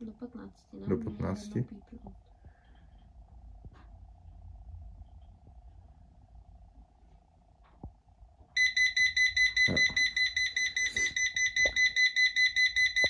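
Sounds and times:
rapid high-pitched alarm beeping: 0:08.6 - 0:13.0.

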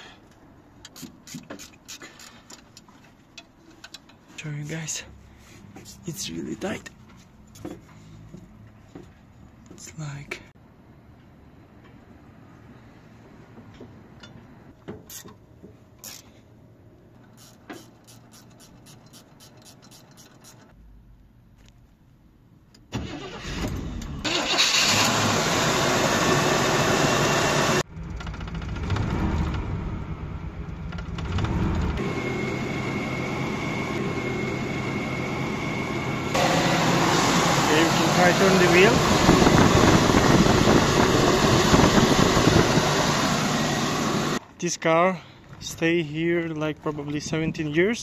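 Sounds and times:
car engine running: 0:24.8 - 0:44.4
steady high whine: 0:29.4 - 0:44.4.

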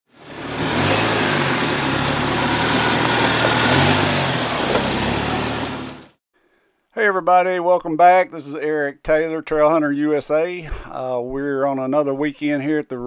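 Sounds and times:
car engine running: 0:00.1 - 0:06.2.

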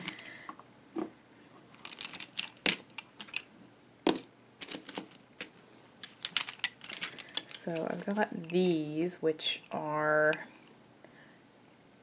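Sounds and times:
pens and pencils clattering: 0:01.8 - 0:03.5, 0:04.1 - 0:08.7.

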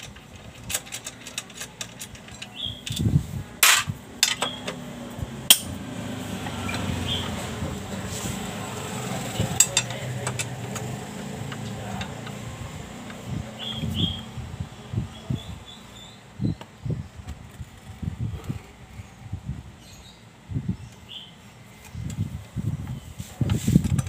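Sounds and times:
wrench metallic clicks: 0:05.5 - 0:05.8.

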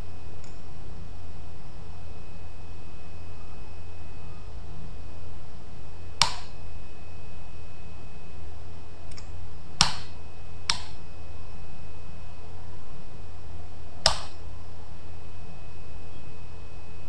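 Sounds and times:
steady low hum: 0:00.0 - 0:17.0
computer mouse clicks: 0:00.4 - 0:00.6, 0:10.7 - 0:11.0.

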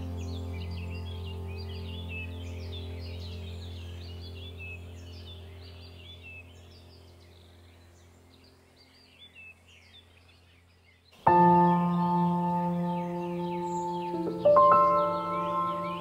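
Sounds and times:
low droning tone: 0:00.0 - 0:08.3
birds chirping: 0:00.0 - 0:16.0.

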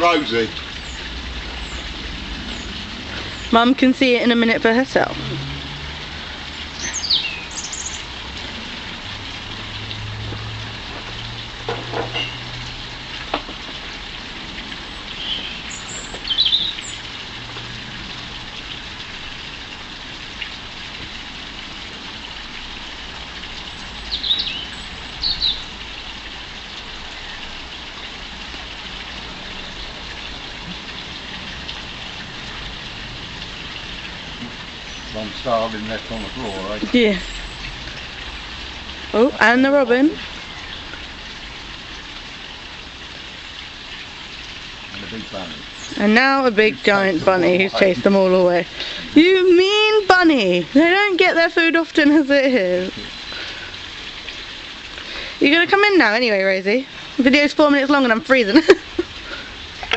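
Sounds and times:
outdoor hiss: 0:00.0 - 0:59.9
small birds chirping: 0:06.7 - 0:08.1, 0:14.9 - 0:17.0, 0:23.6 - 0:25.8, 0:34.3 - 0:37.7, 0:45.4 - 0:47.7.

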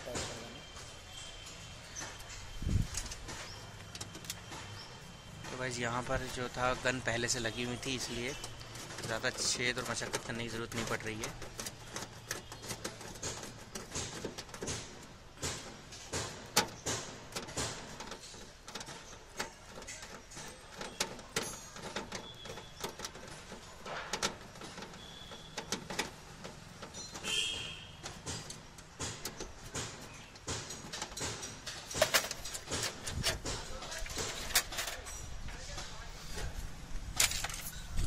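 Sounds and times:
screwdriver on sheet metal: 0:07.2 - 0:35.0.

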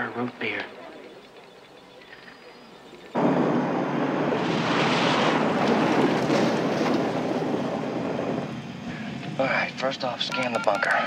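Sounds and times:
light crackles: 0:00.0 - 0:09.4
car engine and tyre noise: 0:00.0 - 0:11.0.

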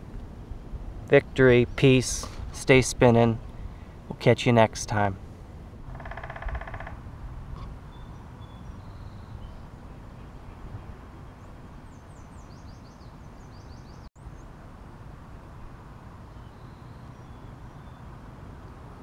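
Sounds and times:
bird chirping: 0:07.9 - 0:10.4, 0:11.3 - 0:14.1.

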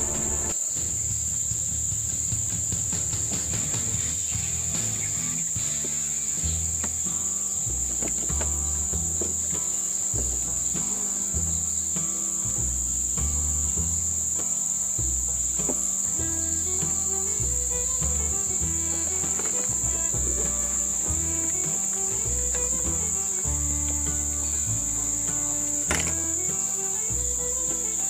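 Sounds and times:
background music with bass line: 0:00.0 - 0:00.6, 0:01.6 - 0:28.0
high-pitched insect drone: 0:16.0 - 0:28.0.

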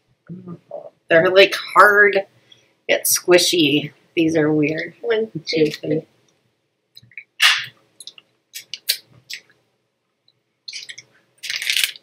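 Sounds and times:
plastic wrapper crinkling: 0:10.7 - 0:12.0.

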